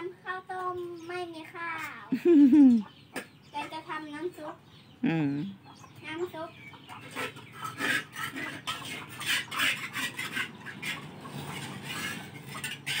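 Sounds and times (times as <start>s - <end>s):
metal spatula scraping a wok: 7.0s - 13.0s.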